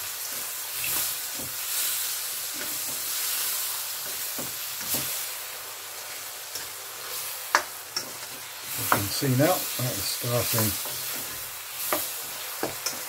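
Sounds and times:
mushrooms sizzling in a wok: 0:00.0 - 0:13.0
spatula scraping a pan: 0:06.5 - 0:09.6.

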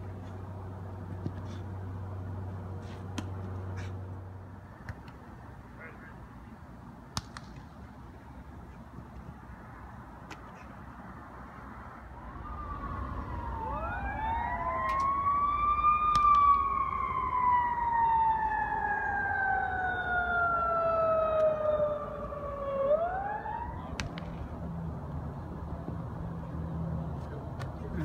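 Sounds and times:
emergency siren wailing: 0:12.0 - 0:24.0.

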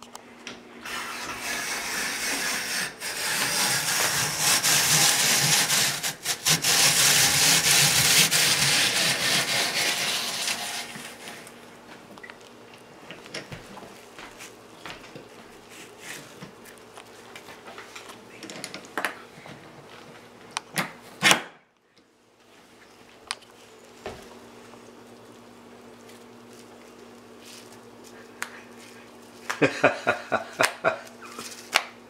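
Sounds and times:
steady low hum: 0:00.0 - 0:32.0
apple peeler clicking and scraping: 0:00.8 - 0:11.6.

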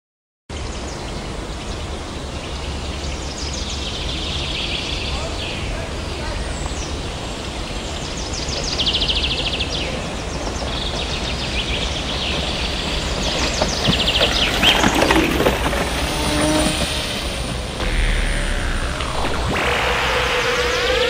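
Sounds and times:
steady low rumble: 0:17.8 - 0:21.0.

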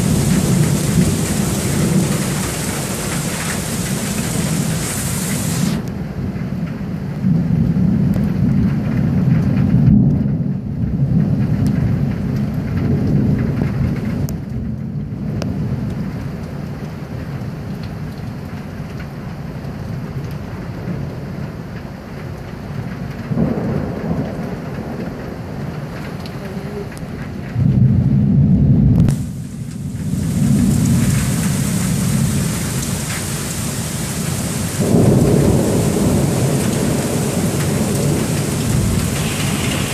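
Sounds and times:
heavy rain hiss: 0:00.0 - 0:06.1, 0:29.1 - 0:39.9
rolling thunder: 0:00.0 - 0:15.8, 0:23.3 - 0:26.2, 0:27.0 - 0:39.9.

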